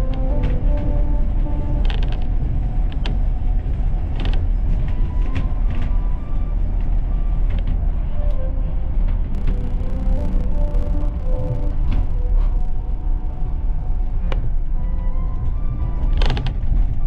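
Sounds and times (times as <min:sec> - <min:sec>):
train low rumble: 0:00.0 - 0:17.0
creaks: 0:01.5 - 0:17.0
sharp clicks: 0:09.3 - 0:12.8.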